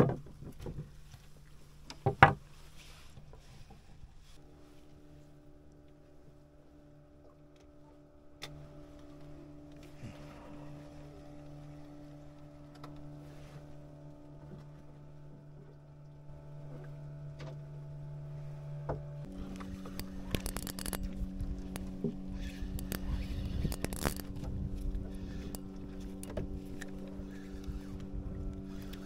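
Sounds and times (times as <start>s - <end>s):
boat engine running: 0.0s - 29.0s
fishing tackle clicks and scrapes: 19.3s - 29.0s.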